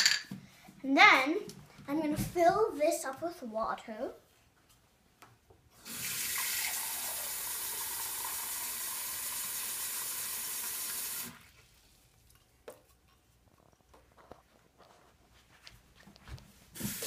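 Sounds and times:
faucet water filling a cup: 0:05.8 - 0:11.5.

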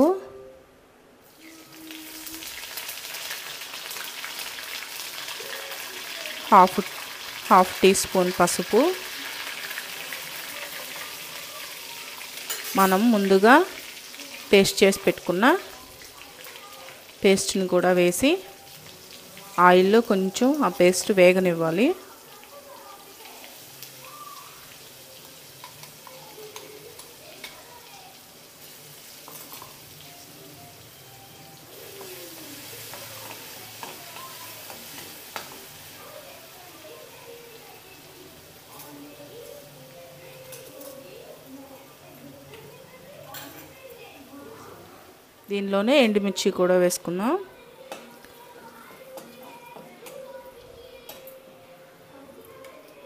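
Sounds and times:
spices sizzling in hot oil: 0:01.2 - 0:53.0
oil crackling and popping: 0:01.8 - 0:07.5, 0:31.8 - 0:35.8.

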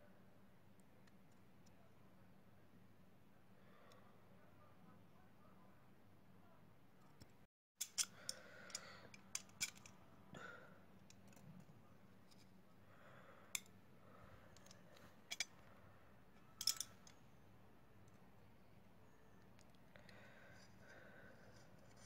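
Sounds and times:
small tools clicking on phone parts: 0:07.8 - 0:10.0, 0:14.6 - 0:15.5, 0:16.4 - 0:17.2.

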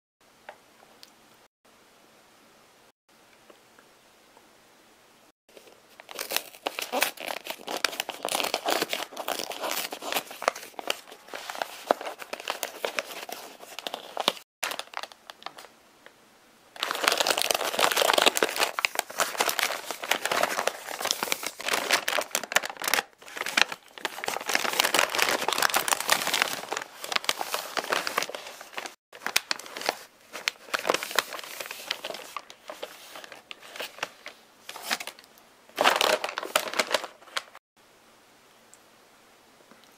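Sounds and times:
packaging rustling and crinkling: 0:05.5 - 0:15.7, 0:16.8 - 0:37.6.

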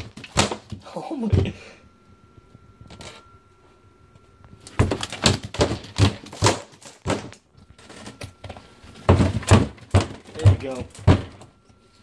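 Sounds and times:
rapid knocks and thuds: 0:09.0 - 0:11.5.

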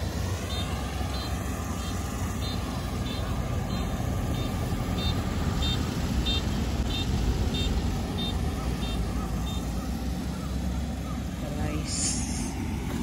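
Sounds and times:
combine harvester rumbling: 0:00.0 - 0:13.0
electronic warning beeper: 0:00.4 - 0:09.7.

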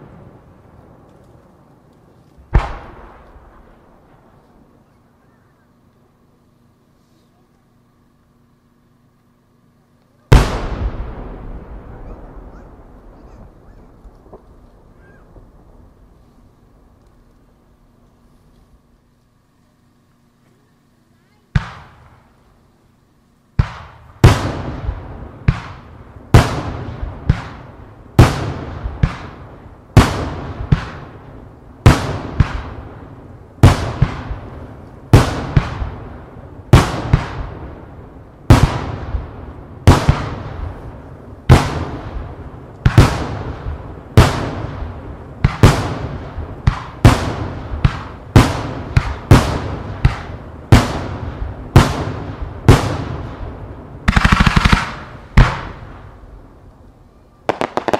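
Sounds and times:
fireworks crackling: 0:00.0 - 0:57.9
firework shells bursting: 0:57.5 - 0:57.9.

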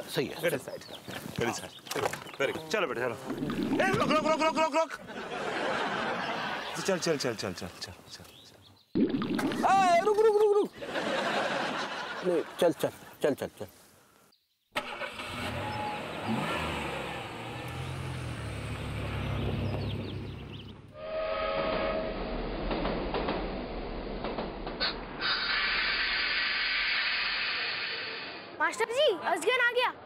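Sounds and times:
train horn blast: 0:21.0 - 0:22.3
train wheels rumbling: 0:21.6 - 0:25.2
loud rushing hiss: 0:25.1 - 0:28.5.

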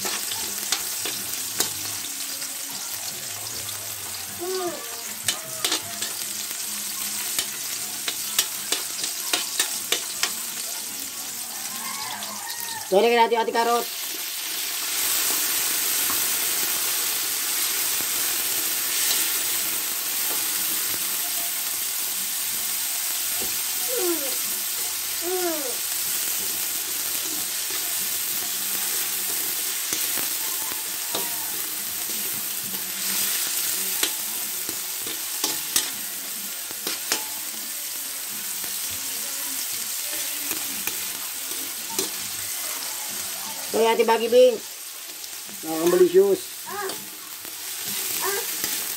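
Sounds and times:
vegetables sizzling in oil: 0:00.0 - 0:48.9
metal spatula scraping a pan: 0:05.0 - 0:06.5, 0:27.4 - 0:37.6.

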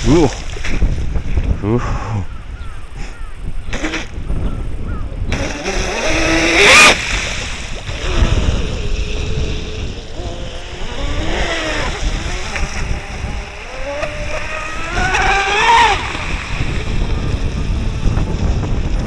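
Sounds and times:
electric boat motor whine: 0:05.3 - 0:19.0.

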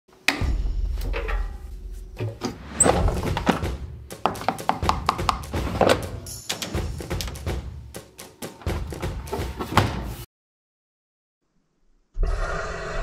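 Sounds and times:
background music: 0:00.1 - 0:10.3.

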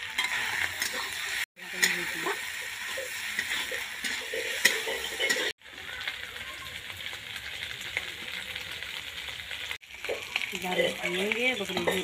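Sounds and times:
metal spatula scraping: 0:00.0 - 0:05.6
food sizzling in a wok: 0:00.0 - 0:12.0.

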